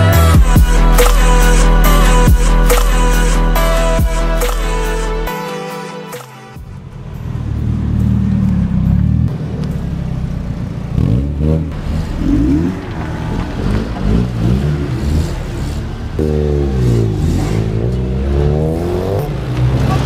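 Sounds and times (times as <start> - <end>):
car engines revving past: 6.7 - 20.0.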